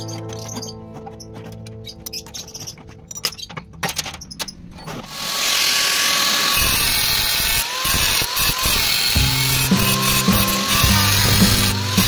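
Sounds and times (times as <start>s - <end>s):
power tool grinding metal: 5.0s - 12.0s.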